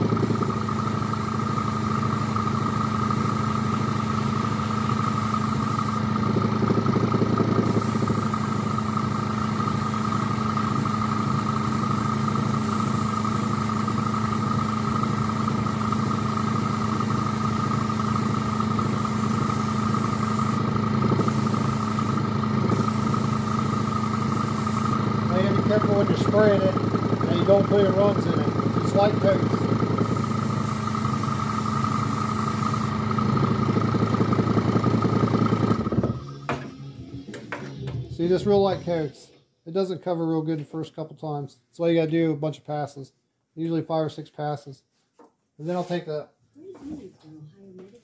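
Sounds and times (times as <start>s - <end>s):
airbrush hissing: 0.0s - 37.4s
air compressor humming: 0.0s - 39.5s.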